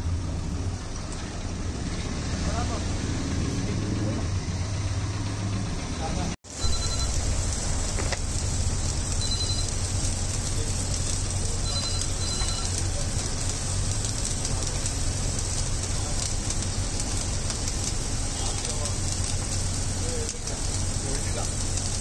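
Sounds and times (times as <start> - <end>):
steady hiss: 6.5 - 22.0
faint high electronic beeps: 6.6 - 7.3, 9.2 - 9.8, 11.6 - 12.8.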